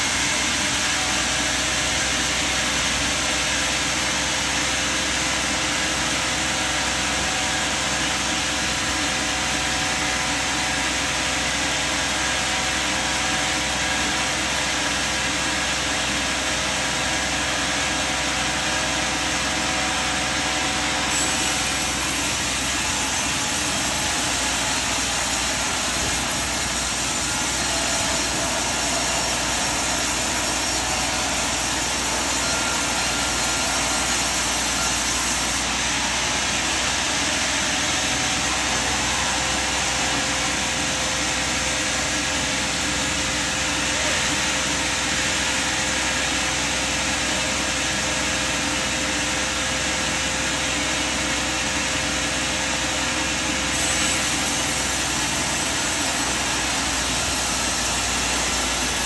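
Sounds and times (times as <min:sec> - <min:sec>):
sawmill machinery drone: 0:00.0 - 0:59.0.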